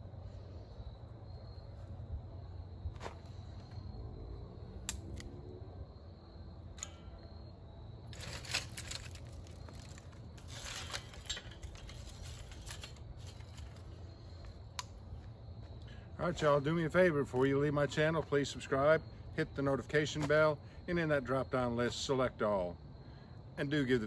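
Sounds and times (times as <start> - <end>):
sharp clicks of bamboo: 4.8 - 5.4
bamboo pieces rustling and clattering: 8.0 - 15.3.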